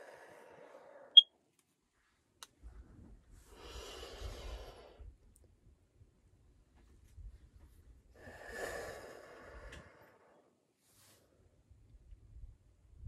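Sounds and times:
deep airy breath: 0.0s - 1.1s, 3.4s - 5.1s, 8.2s - 11.2s.

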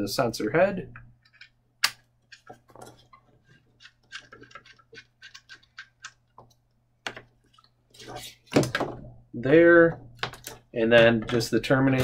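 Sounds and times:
connector clicking and scraping on plastic: 1.2s - 6.6s.

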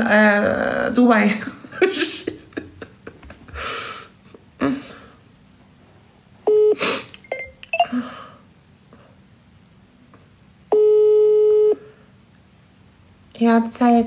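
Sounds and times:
phone ringing beep tone: 6.5s - 7.9s, 10.7s - 11.8s.

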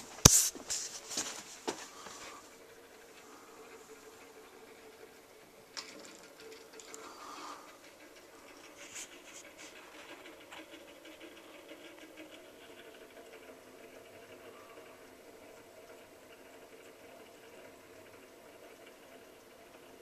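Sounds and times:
handling rustles: 0.0s - 2.4s
low steady hum: 0.0s - 20.0s.

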